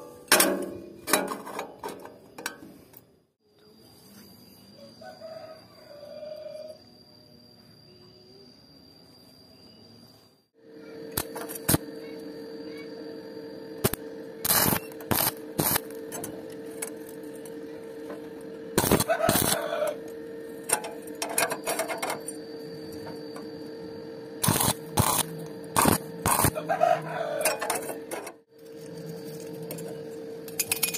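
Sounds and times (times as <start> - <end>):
welding arc crackling: 11.1 - 12.2, 13.8 - 21.3, 24.4 - 26.7.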